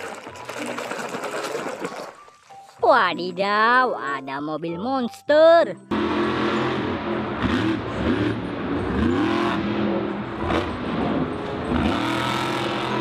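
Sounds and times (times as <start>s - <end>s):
truck engine revving: 5.9s - 13.0s.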